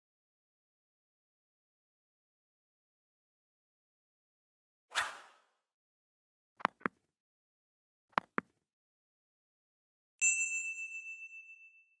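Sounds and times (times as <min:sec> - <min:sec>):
bell chime: 0:10.2 - 0:12.0.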